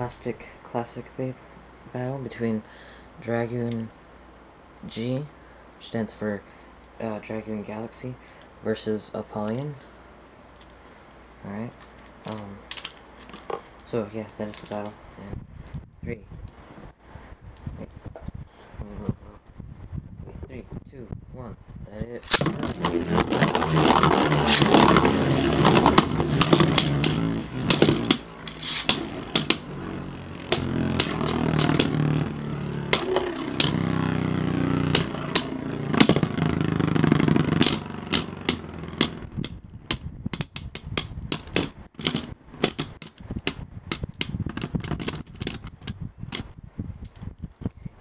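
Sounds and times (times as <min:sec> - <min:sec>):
spinning tops clicking together: 0:22.2 - 0:29.7, 0:30.5 - 0:39.6
spinning tops whirring: 0:22.3 - 0:39.6.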